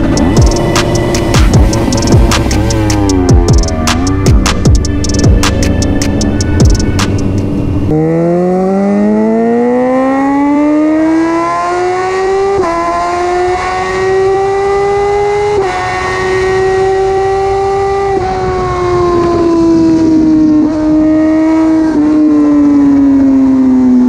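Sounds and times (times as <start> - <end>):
music: 0.0 - 7.9
motorcycle engine accelerating: 0.0 - 24.0.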